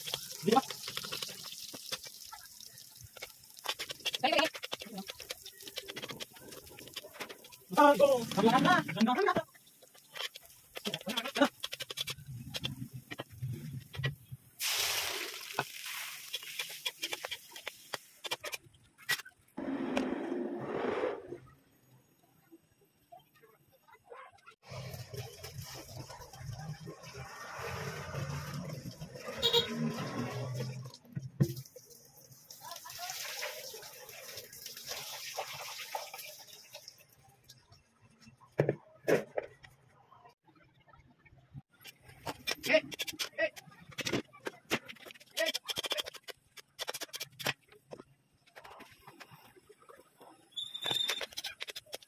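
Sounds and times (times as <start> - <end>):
meat sizzling in oil: 0.0 - 6.3, 14.6 - 17.9
oil crackling in a wok: 0.0 - 8.4, 14.6 - 18.5.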